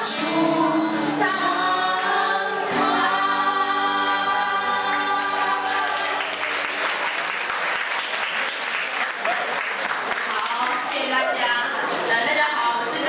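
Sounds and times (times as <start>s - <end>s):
group of people singing: 0.0s - 6.8s
clapping and applause: 5.0s - 12.3s.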